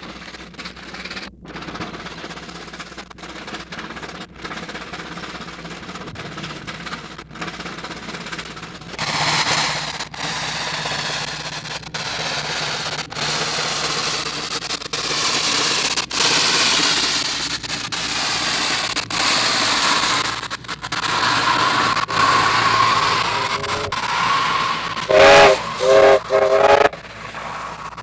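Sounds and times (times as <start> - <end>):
steam engine hissing: 0.0 - 28.0
film soundtrack crackle: 0.2 - 28.0
steam whistle: 21.0 - 27.9.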